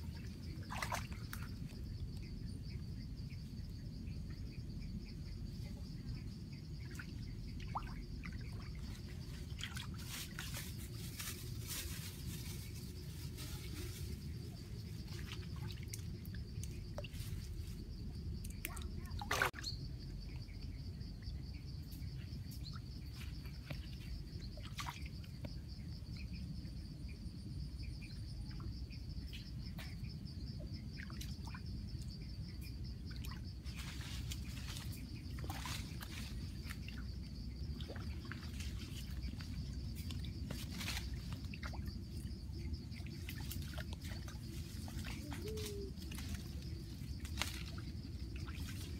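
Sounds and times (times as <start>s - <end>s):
stream water trickling and sloshing: 0.0s - 48.9s
sharp splash: 0.6s - 1.5s, 18.7s - 19.6s
small splashes and clicks: 0.6s - 1.8s, 18.4s - 19.6s, 42.9s - 48.9s.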